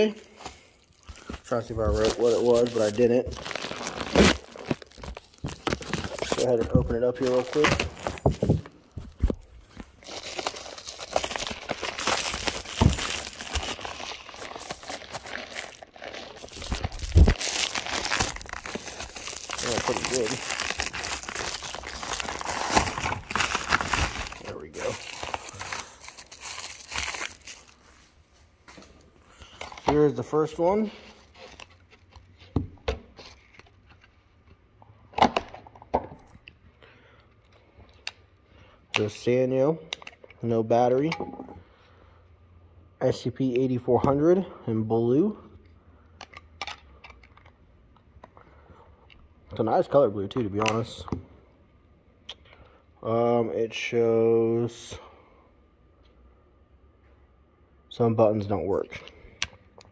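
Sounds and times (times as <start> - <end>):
plastic mailer crinkling: 1.2 - 27.8.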